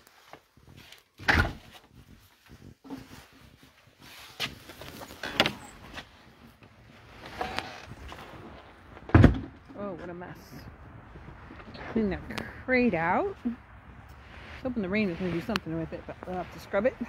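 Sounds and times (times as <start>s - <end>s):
rustling: 0.0s - 9.2s, 9.8s - 17.0s
door opening and closing: 9.1s - 9.6s.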